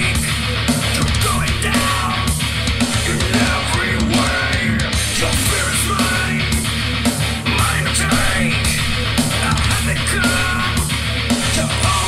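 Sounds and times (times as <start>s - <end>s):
heavy rock music with guitar: 0.0s - 12.0s.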